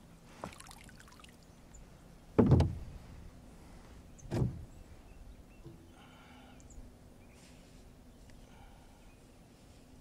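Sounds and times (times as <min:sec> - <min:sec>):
knocks against kayak: 0:02.4 - 0:02.8.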